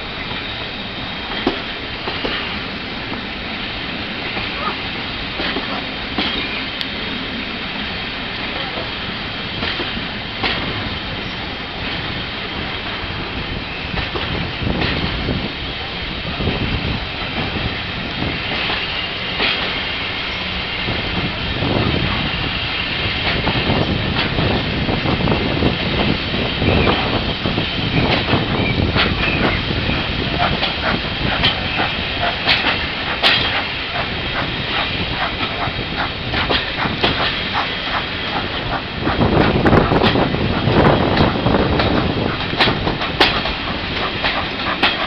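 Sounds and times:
train rumbling on rails: 0:00.0 - 0:45.0
wheels clicking over rail joints: 0:05.4 - 0:06.5, 0:28.0 - 0:45.0.

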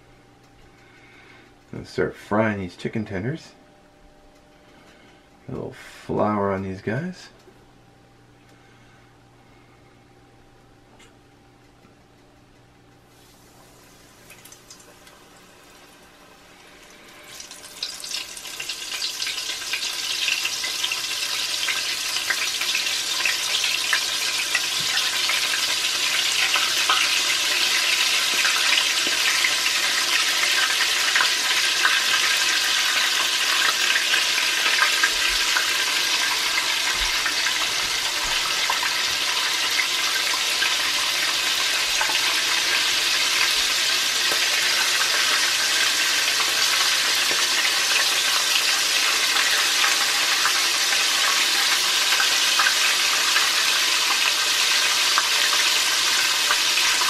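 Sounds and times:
deep-frying sizzle and crackle: 0:13.0 - 0:57.0.

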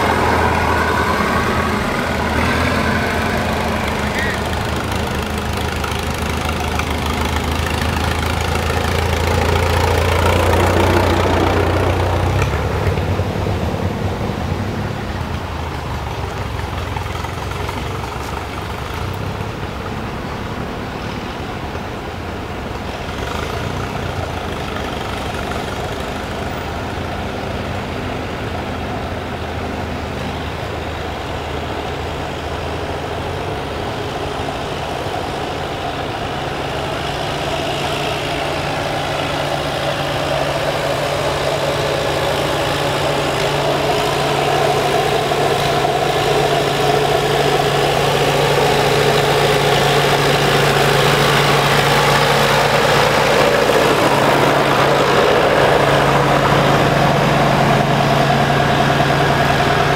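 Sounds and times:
tractor approaching: 0:00.0 - 0:59.9
tractor engine driving past: 0:00.0 - 0:59.9.

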